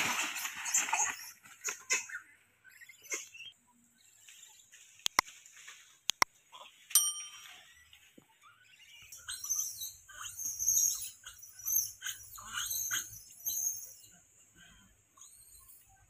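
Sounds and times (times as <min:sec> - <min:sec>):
bell-like ding: 0:07.0 - 0:07.8.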